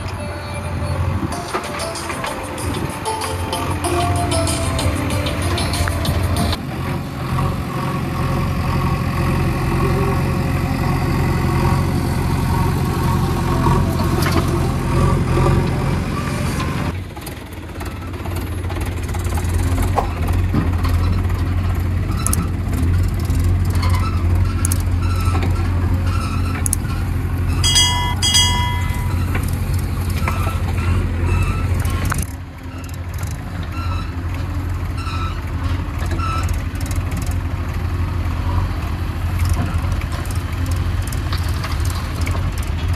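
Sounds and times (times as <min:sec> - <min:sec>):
diesel engines running: 0:00.0 - 0:42.9
short beeps: 0:27.6 - 0:29.3.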